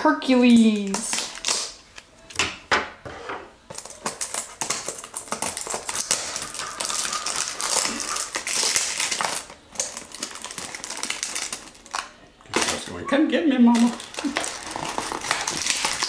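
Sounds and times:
packaging tearing and crinkling: 0:00.7 - 0:02.0, 0:03.7 - 0:13.0, 0:13.8 - 0:16.0.

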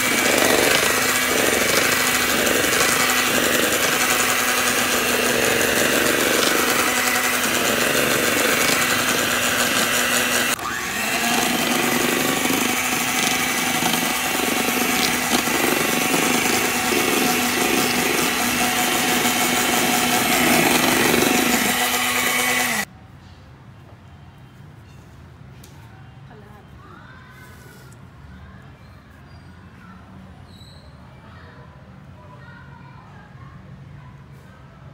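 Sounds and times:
electric hand mixer running: 0:00.0 - 0:22.9.

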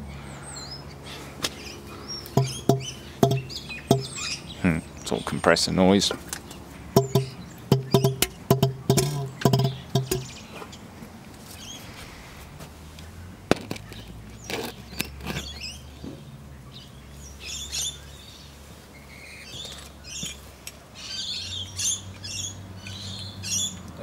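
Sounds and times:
birds chirping: 0:00.0 - 0:24.0
compressor humming: 0:01.8 - 0:05.2, 0:06.8 - 0:10.4
knocks: 0:02.4 - 0:04.2, 0:07.0 - 0:10.3.

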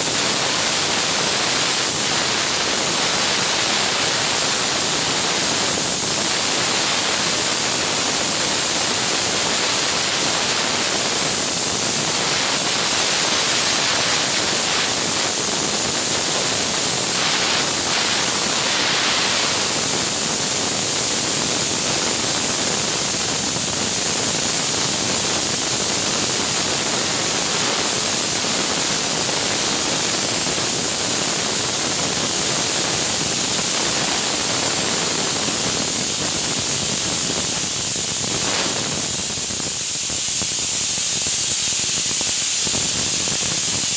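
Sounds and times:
steam cleaner hissing: 0:00.0 - 0:43.9.

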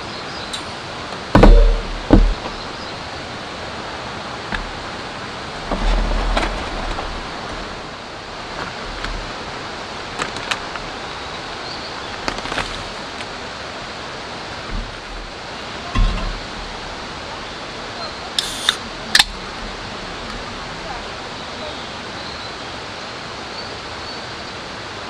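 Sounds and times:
steady rain falling: 0:00.0 - 0:25.0
foil pouch handled: 0:12.1 - 0:13.3.

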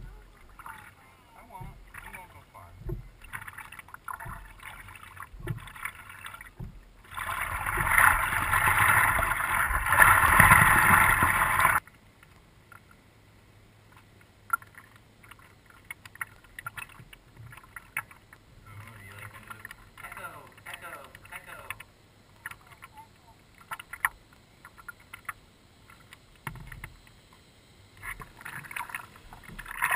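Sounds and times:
faint water drips: 0:00.0 - 0:08.2, 0:13.8 - 0:27.4
water splashing around kayak: 0:00.0 - 0:27.3, 0:27.9 - 0:29.9
small knocks on hull: 0:01.5 - 0:08.6, 0:14.0 - 0:21.8, 0:25.9 - 0:27.1, 0:28.0 - 0:29.9.

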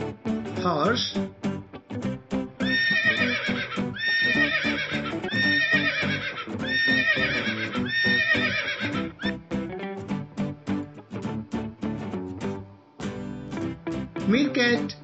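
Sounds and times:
horse whinnying: 0:02.6 - 0:09.3.

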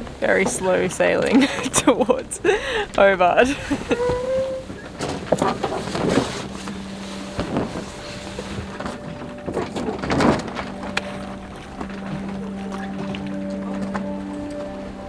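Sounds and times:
low hum: 0:00.0 - 0:15.0
water splashing against hull: 0:03.6 - 0:14.7.

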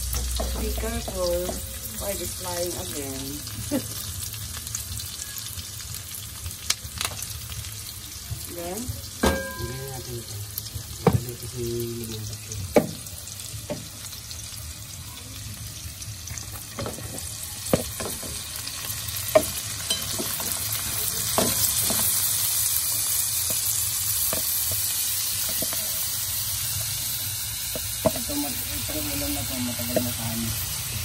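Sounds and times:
food sizzling in oil: 0:00.0 - 0:31.0.

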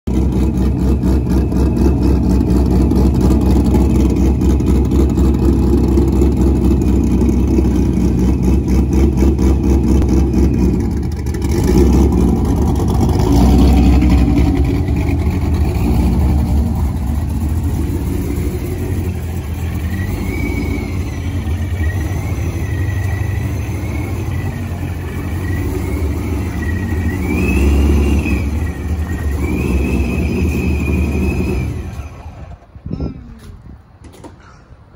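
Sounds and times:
car engine idling with pulsing beat: 0:00.1 - 0:13.5.

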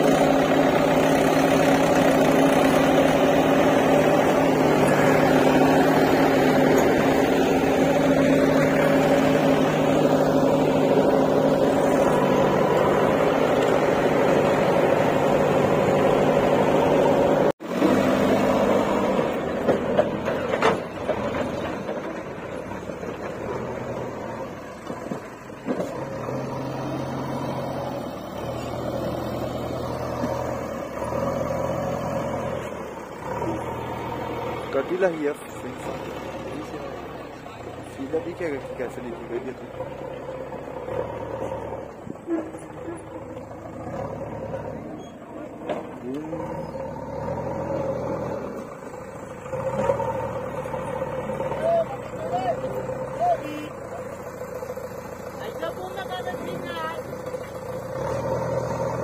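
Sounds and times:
diesel engines running: 0:00.0 - 0:59.0.

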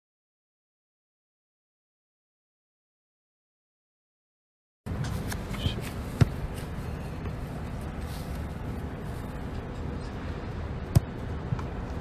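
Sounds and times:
low background rumble: 0:04.9 - 0:12.0
boot kicking football: 0:05.2 - 0:07.4.

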